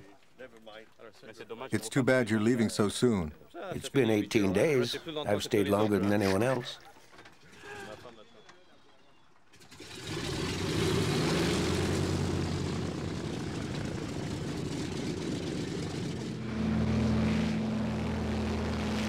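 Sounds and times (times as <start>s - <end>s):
propeller airplane engines droning: 9.8s - 19.0s.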